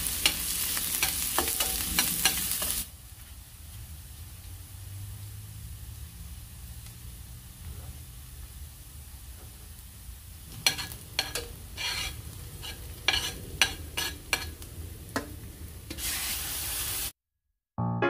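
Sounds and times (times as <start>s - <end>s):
onions sizzling in oil: 0.0s - 17.1s
metal spatula scraping skillet: 0.1s - 2.8s, 10.5s - 16.5s.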